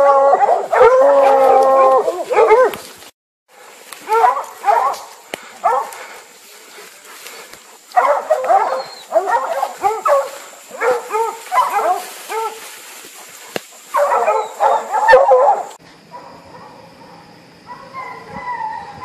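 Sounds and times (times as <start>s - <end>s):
hounds baying: 0.0s - 2.9s, 4.0s - 19.0s.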